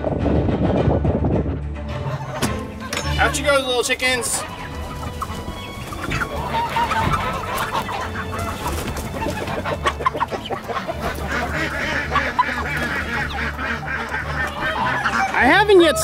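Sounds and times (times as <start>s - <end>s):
chickens clucking: 0.4s - 16.0s.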